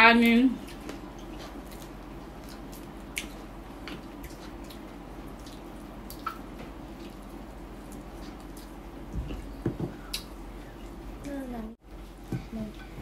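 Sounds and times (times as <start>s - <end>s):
steady low hum: 0.0s - 13.0s
soft chewing: 0.6s - 11.4s
wet mouth clicks: 5.4s - 6.4s.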